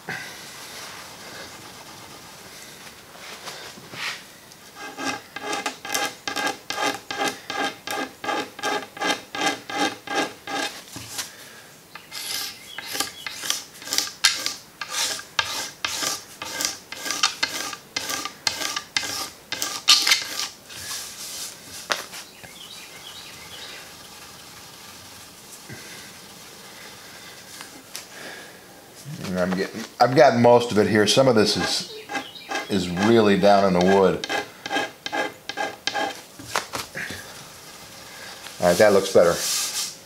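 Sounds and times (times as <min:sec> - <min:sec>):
steel wool scrubbing wood: 0:04.0 - 0:11.2, 0:12.1 - 0:22.3, 0:23.0 - 0:27.8, 0:30.3 - 0:36.3.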